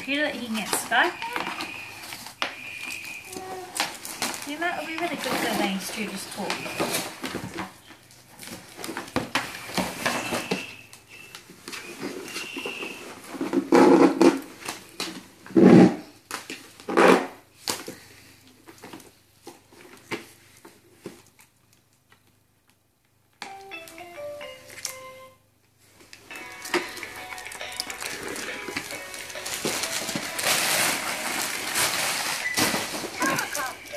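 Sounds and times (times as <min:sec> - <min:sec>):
cardboard packaging tearing: 0:00.5 - 0:07.4, 0:26.6 - 0:33.9
toy playing electronic tune: 0:00.9 - 0:02.0, 0:23.4 - 0:25.4, 0:26.3 - 0:31.3, 0:33.2 - 0:33.9.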